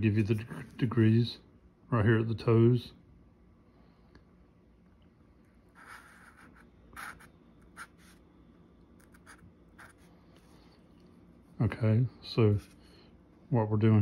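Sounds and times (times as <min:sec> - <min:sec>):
marker drawing on paper: 0:05.8 - 0:08.2, 0:09.0 - 0:10.5.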